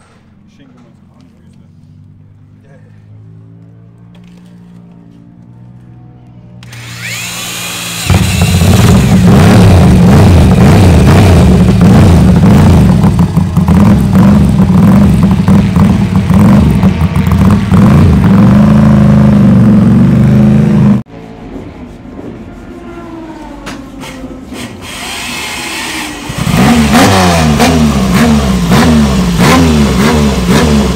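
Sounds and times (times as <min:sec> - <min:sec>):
motorcycle engine revving: 0:00.3 - 0:21.1, 0:22.9 - 0:30.9
roller starter whining: 0:06.6 - 0:09.9.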